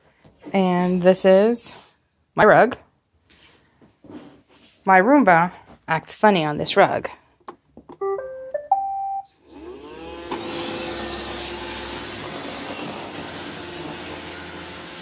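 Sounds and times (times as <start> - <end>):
electronic start-up beeps: 8.0 - 9.5
robot vacuum motor whirring: 9.4 - 15.0.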